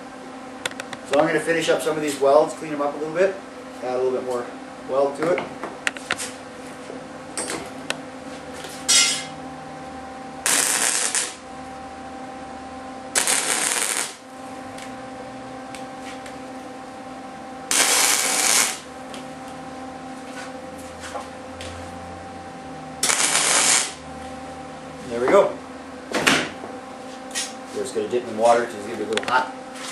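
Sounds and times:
welder low hum: 7.9s - 26.0s
welding arc bursts: 10.4s - 11.4s, 13.2s - 14.2s, 17.7s - 18.9s, 23.0s - 24.0s.

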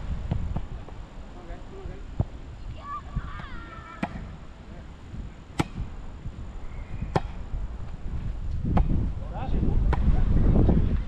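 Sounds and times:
volleyball slaps: 5.5s - 5.8s, 7.1s - 7.4s.

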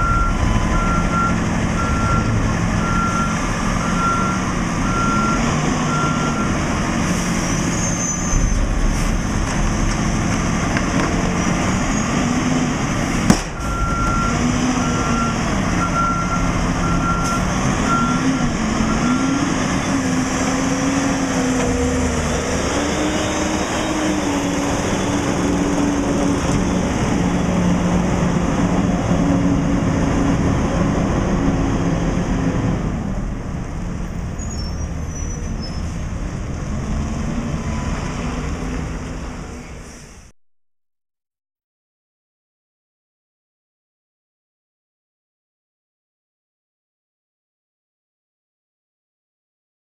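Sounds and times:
garbage truck engine: 0.0s - 40.3s
backup alarm beeping: 13.6s - 18.2s.

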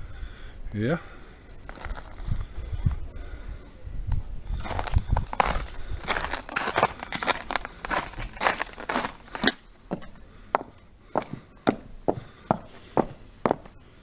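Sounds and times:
footsteps on cobblestones: 4.6s - 13.7s.

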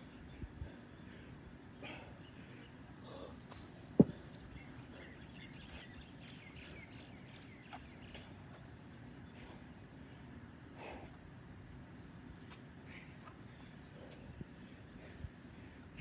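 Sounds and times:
faint bird chirps: 0.0s - 8.6s.

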